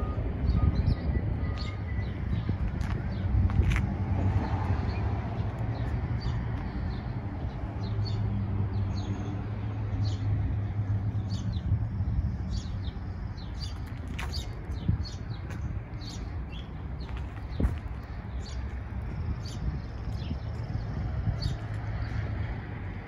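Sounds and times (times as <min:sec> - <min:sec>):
small birds chirping: 0:11.2 - 0:22.3.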